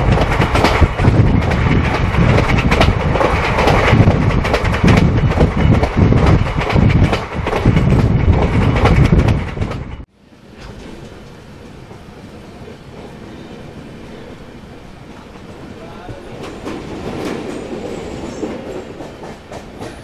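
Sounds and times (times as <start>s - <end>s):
wheels clattering over rail joints: 0.0s - 12.0s
train rushing noise: 0.0s - 20.0s.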